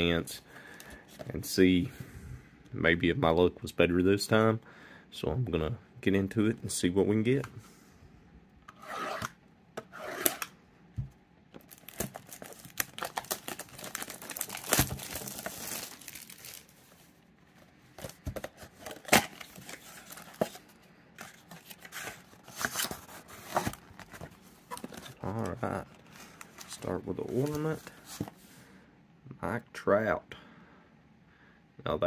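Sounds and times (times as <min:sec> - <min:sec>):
plastic wrap tearing and crinkling: 0:11.6 - 0:17.0.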